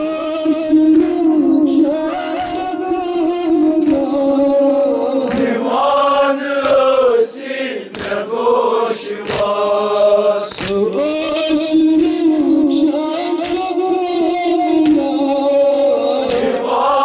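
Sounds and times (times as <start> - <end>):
men chanting in unison: 0.0 - 17.0.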